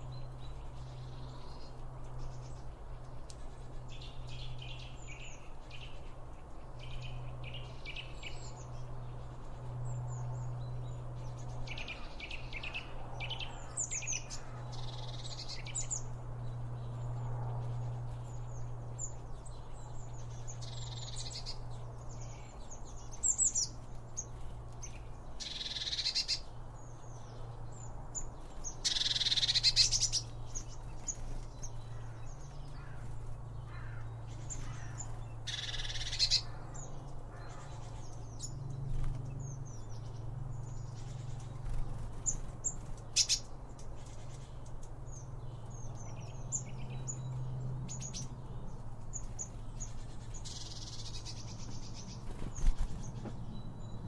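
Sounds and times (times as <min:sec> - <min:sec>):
birds chirping and calling: 0:00.0 - 0:54.0.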